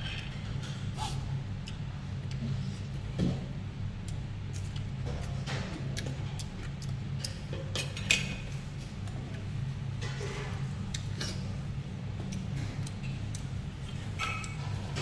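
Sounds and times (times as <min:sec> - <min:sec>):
steady low hum: 0:00.0 - 0:15.0
bowls and utensils clinking: 0:14.1 - 0:15.0.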